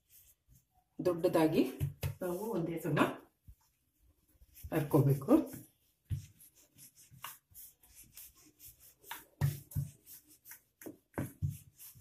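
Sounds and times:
rolling pin rolling dough: 0:03.4 - 0:12.0.

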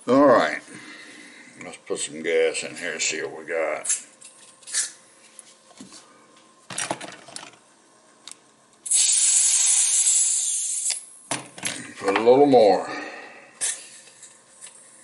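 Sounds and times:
gas can hissing: 0:08.8 - 0:11.1.

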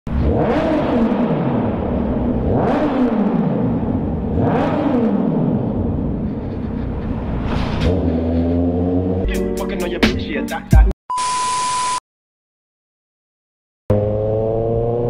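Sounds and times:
motorcycle engine revving in tunnel: 0:00.1 - 0:09.3, 0:13.9 - 0:15.0.

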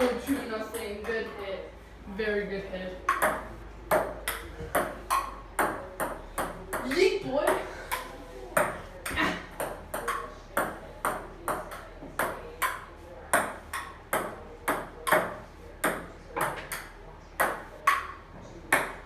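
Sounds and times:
table-tennis ball clicking: 0:03.1 - 0:06.9, 0:09.6 - 0:19.0.

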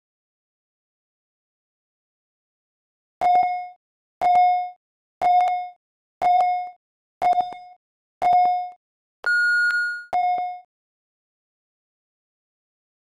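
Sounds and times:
long high-pitched beep: 0:09.3 - 0:10.7
short electronic beeps: 0:09.3 - 0:10.7.

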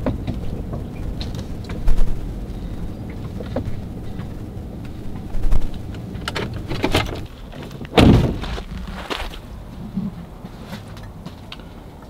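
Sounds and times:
truck engine rumble from inside cab: 0:00.0 - 0:12.0
truck door clunk: 0:05.5 - 0:08.8.

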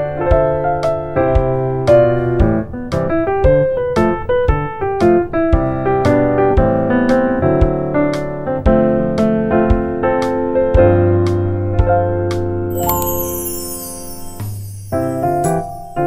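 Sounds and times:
piano tune over light beat: 0:00.0 - 0:16.0.

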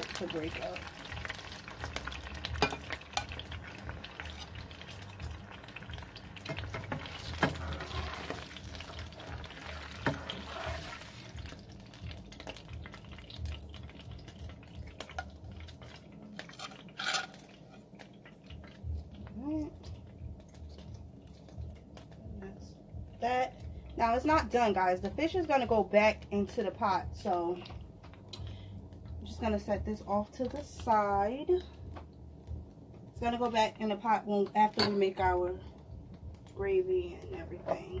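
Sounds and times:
oil sizzling and popping in pan: 0:00.0 - 0:37.2
metal spatula scraping pan: 0:06.7 - 0:08.5, 0:09.2 - 0:11.2, 0:16.4 - 0:17.8.

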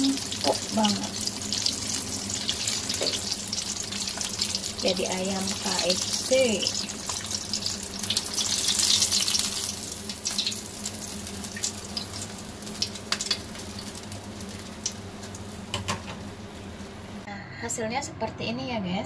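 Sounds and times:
oil sizzling and crackling: 0:00.0 - 0:17.3.

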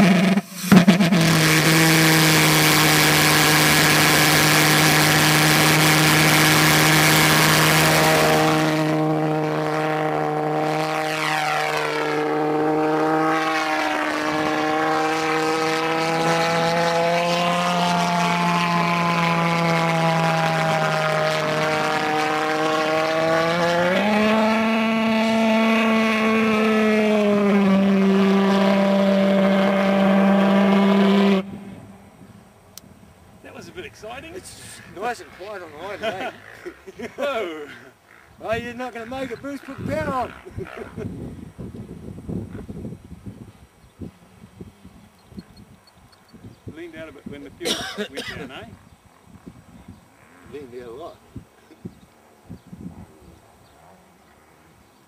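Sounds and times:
pulsejet engine running: 0:00.0 - 0:28.8.

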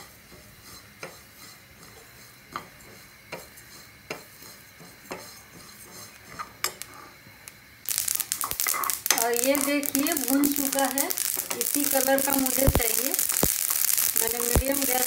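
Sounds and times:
seeds shifting in pan: 0:07.9 - 0:15.0.

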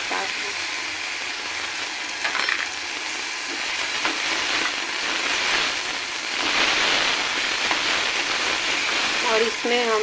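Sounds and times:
tomatoes sizzling in hot oil: 0:00.0 - 0:10.0.

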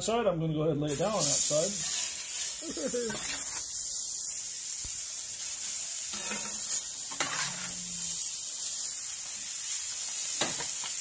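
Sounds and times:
burgers sizzling on griddle: 0:00.8 - 0:11.0.

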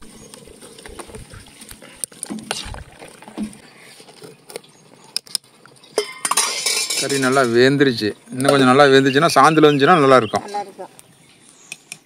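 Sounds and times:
ladle clinking against pot: 0:06.0 - 0:07.6
metal clatter: 0:06.0 - 0:07.7.

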